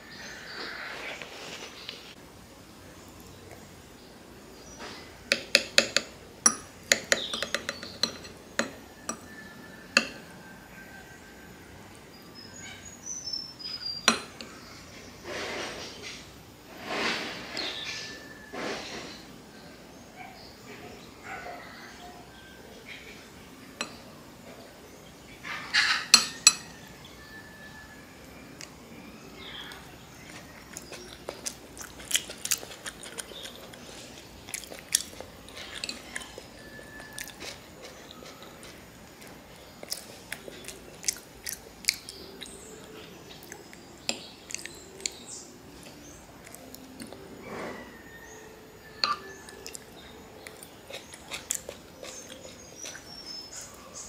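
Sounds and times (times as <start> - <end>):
cutlery clinking on ceramic plate: 5.3 - 9.4, 10.0 - 10.3, 25.8 - 26.8, 49.0 - 49.3
fork scraping across plate: 15.2 - 19.3, 47.4 - 48.2.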